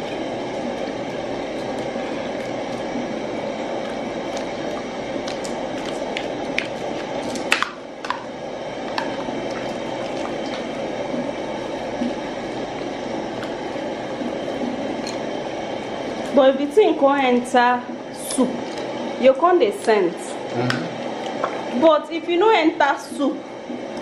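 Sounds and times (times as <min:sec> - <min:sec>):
wet squelching of stirred soup: 0:08.9 - 0:16.3.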